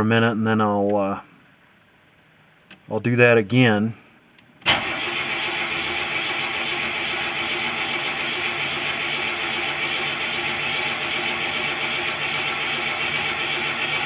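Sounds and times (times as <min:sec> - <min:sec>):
starter motor cranking engine: 0:04.6 - 0:14.0.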